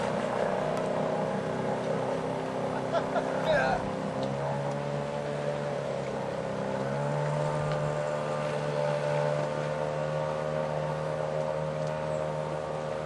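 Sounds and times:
outboard motor running: 0.0 - 13.0.

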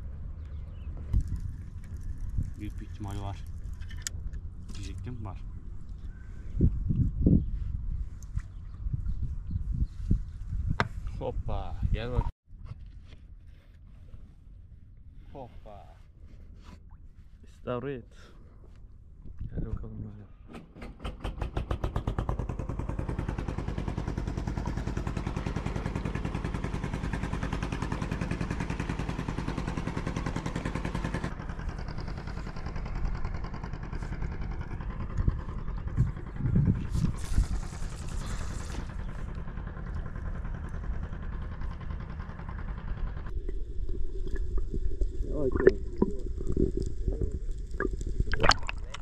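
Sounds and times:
outboard motor running: 21.0 - 49.0.

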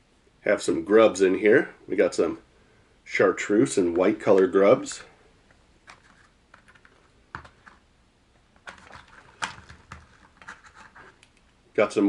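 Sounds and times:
plastic clicks and taps: 5.9 - 7.8.

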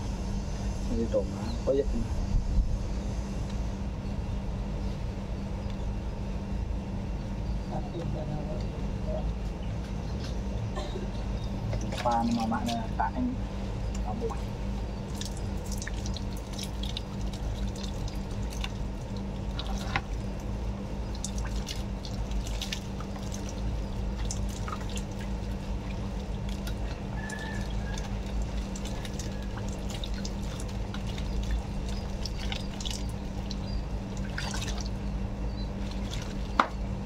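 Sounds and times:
steady low hum: 0.0 - 37.0
water pouring over hair: 15.1 - 20.4, 21.1 - 35.0
small water splashes: 15.1 - 35.1, 35.8 - 36.8.

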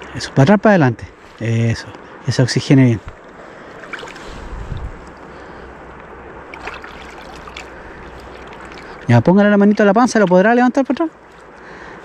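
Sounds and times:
river current rushing: 1.1 - 12.0
low rumble: 4.3 - 6.3.

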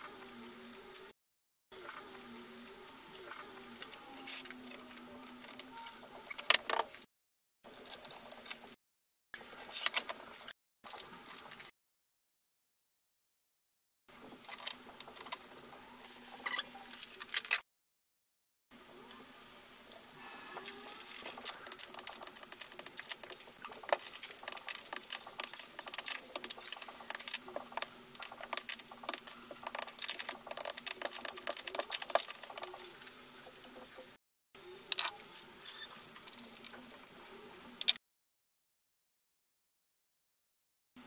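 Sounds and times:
ratchet wrenches clicking on metal: 21.1 - 32.8.

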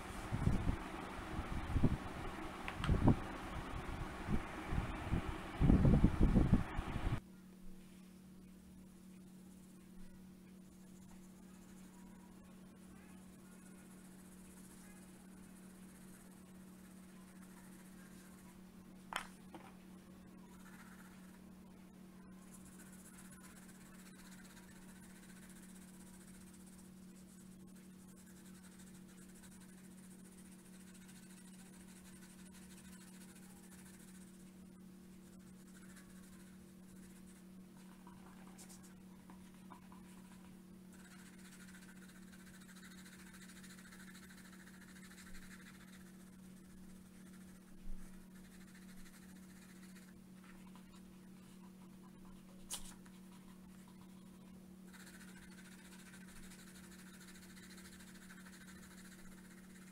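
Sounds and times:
steady low hum: 0.0 - 59.9
pencil scratching on paper: 13.2 - 18.4, 20.4 - 21.4, 22.4 - 34.6, 35.2 - 38.9, 39.5 - 59.9.

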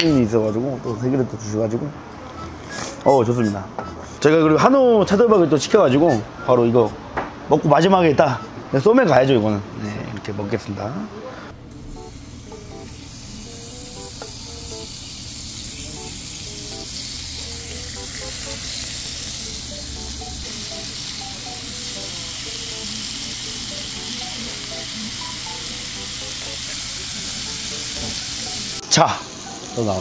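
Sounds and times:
beef slices sizzling on a grill: 11.8 - 30.0.

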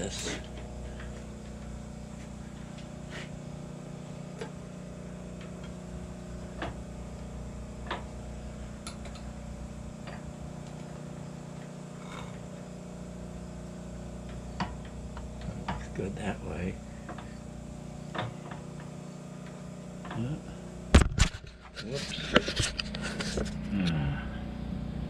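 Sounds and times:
steady hum: 0.0 - 25.0.

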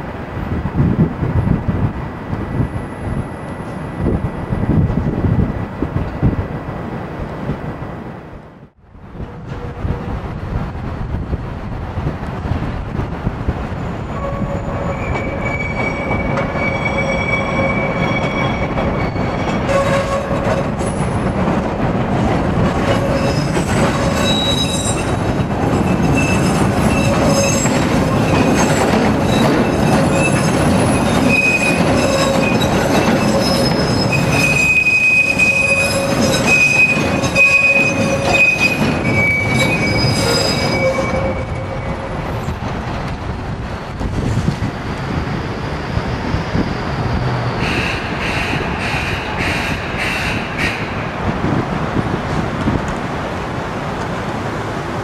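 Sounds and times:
train cars rumbling on track: 0.0 - 55.0
train wheels squealing: 13.7 - 21.2, 22.8 - 42.6, 44.6 - 50.8.

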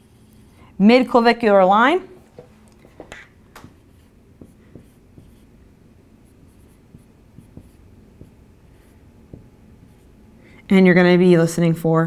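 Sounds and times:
marker tapping on whiteboard: 2.9 - 5.4, 6.6 - 8.4
marker scratching on whiteboard: 3.1 - 5.6, 6.2 - 10.2.

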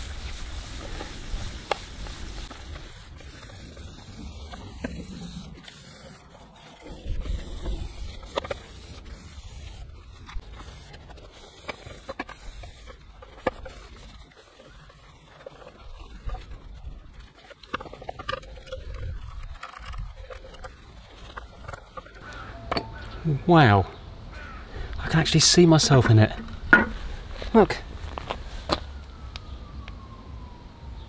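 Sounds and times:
cloth rubbing on car paint: 0.0 - 13.0, 27.0 - 28.9.

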